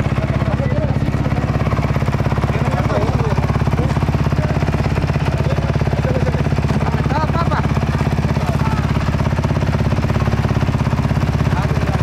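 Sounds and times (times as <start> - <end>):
faint voices: 0.0 - 9.4
motorcycle engine idling: 0.0 - 12.0.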